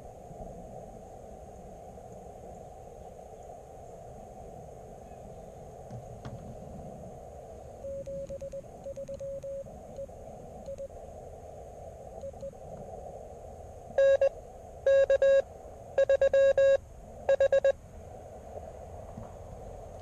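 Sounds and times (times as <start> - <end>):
radio receiver hiss: 5.9 - 17.8
keyed morse sidetone: 7.8 - 10.1, 10.7 - 10.9, 12.2 - 12.6, 14.0 - 14.3, 14.9 - 15.4, 16.0 - 17.8
morse code signal: 7.8 - 10.9, 12.2 - 12.6, 14.0 - 14.3, 14.9 - 15.4, 16.0 - 17.8.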